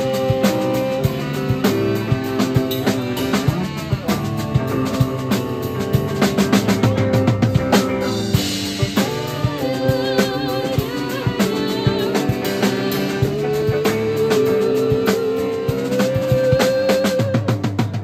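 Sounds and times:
jazz band playing: 0.0s - 18.0s.

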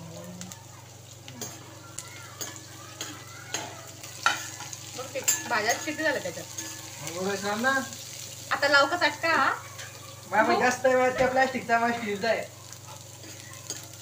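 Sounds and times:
light sizzle: 0.0s - 14.0s
spatula scraping and tapping pan: 2.4s - 7.0s.

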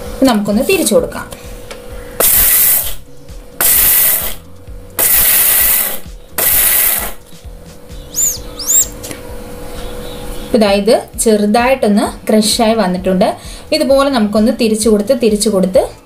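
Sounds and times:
mixer grinder grinding peanuts: 5.0s - 7.2s.

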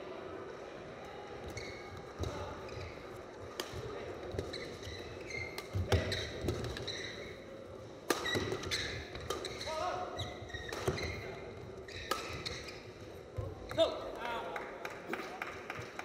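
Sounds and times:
shoes squeaking on court floor: 1.4s - 14.0s
racket striking shuttlecock: 3.5s - 4.6s, 8.0s - 9.7s, 10.5s - 11.2s, 11.9s - 12.8s.

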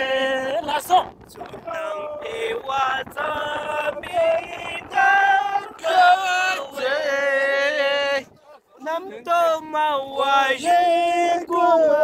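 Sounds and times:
voices singing long notes: 0.0s - 12.0s.

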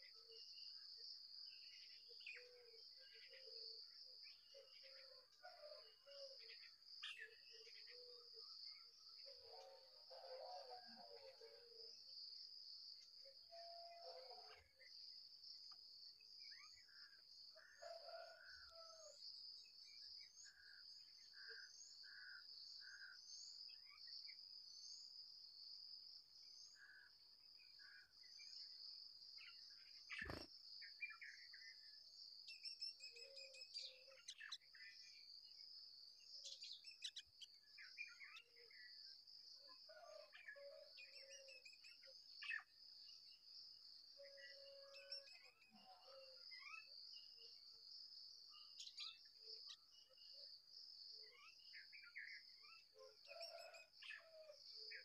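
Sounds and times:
small birds chirping: 30.2s - 31.0s.

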